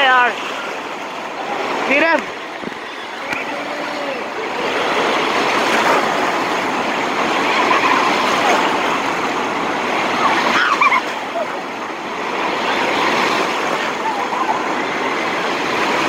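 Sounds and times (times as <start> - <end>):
surf churning and rushing: 0.0 - 16.0
faint children's voices: 12.4 - 15.4.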